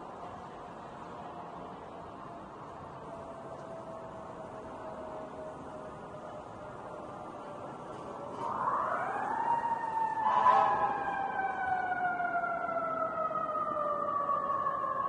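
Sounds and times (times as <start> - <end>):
emergency vehicle siren: 0.0 - 15.0.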